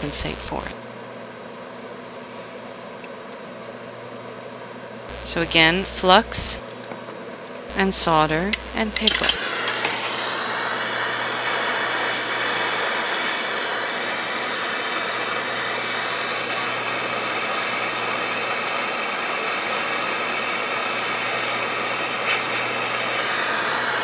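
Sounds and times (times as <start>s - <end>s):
torch flame hissing: 5.1s - 6.8s, 7.7s - 24.0s.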